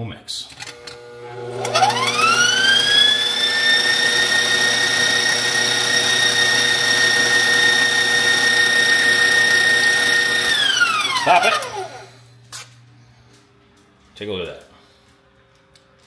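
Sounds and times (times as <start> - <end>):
stand mixer motor whine: 0.6 - 12.2.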